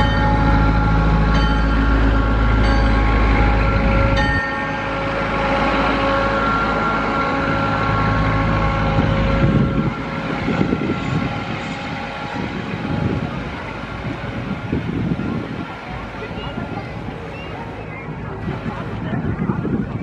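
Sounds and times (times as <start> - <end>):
train rumble: 0.0 - 20.0
locomotive horn: 2.1 - 13.2.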